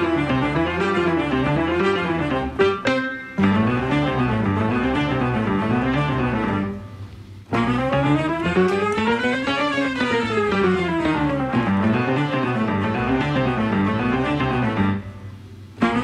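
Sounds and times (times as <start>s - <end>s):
instrumental background music: 7.5s - 15.2s.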